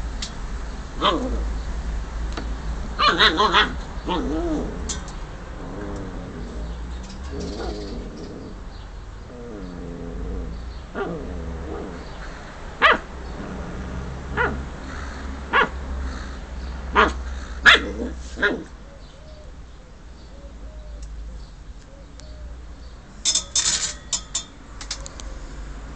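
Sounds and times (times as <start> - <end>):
dog barking: 3.0 - 4.2, 12.8 - 13.1, 14.3 - 14.7, 15.5 - 15.8, 16.9 - 18.7.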